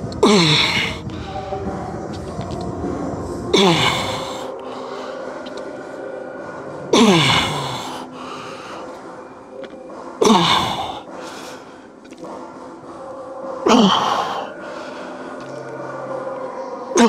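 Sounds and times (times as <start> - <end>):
man's strained exhalations with groans: 6.9 - 8.9, 13.6 - 14.9.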